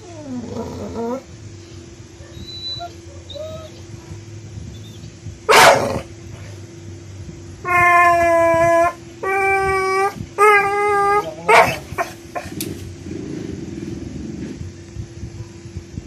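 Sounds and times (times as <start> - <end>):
dog howling: 2.3 - 3.8, 7.6 - 12.5
dog barking sharply: 5.5 - 5.9.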